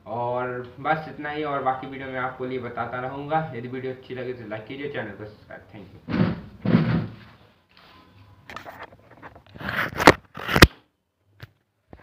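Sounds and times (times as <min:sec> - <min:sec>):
sharp knocks: 0:06.1 - 0:07.2.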